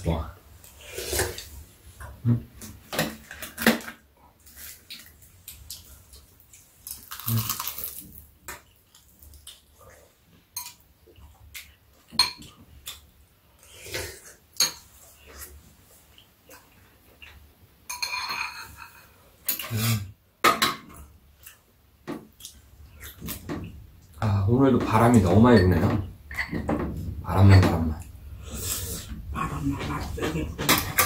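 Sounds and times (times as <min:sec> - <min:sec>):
utensils clinking against ceramic bowls: 0:17.9 - 0:19.8, 0:30.2 - 0:31.0.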